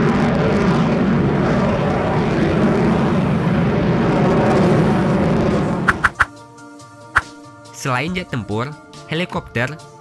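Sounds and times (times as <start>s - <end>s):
jet engine roar: 0.0s - 6.3s.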